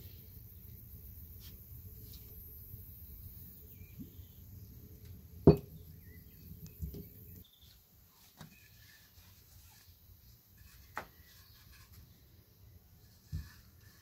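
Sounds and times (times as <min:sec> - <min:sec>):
faint bird chirps: 0:02.0 - 0:05.0, 0:05.7 - 0:10.0.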